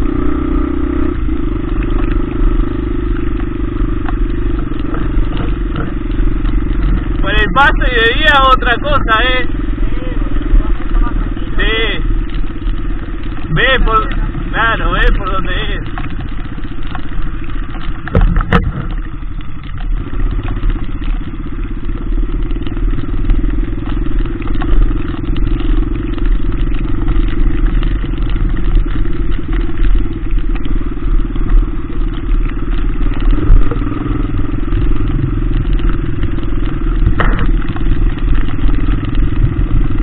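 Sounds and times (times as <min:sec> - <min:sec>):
dirt bike engine running: 0:00.0 - 0:40.0
sharp knocks: 0:37.0 - 0:37.8.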